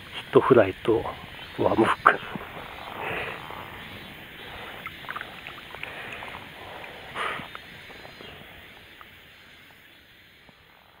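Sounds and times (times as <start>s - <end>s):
water splashing and dripping: 2.1s - 9.8s.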